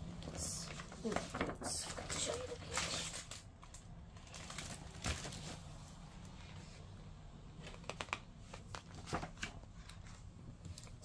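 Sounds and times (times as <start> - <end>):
book pages flicking: 7.6 - 10.1.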